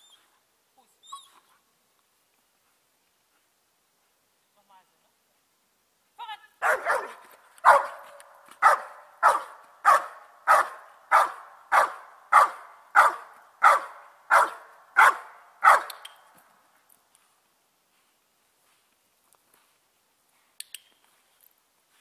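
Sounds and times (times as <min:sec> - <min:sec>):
dog barking rhythmically: 0:06.6 - 0:08.0, 0:08.6 - 0:16.0.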